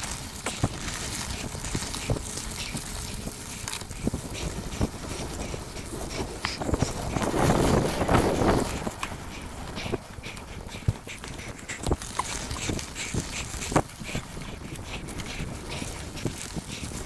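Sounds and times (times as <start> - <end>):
bike clicks and rattles: 0.0 - 17.0
bike tyres crunching on dirt: 0.0 - 17.0.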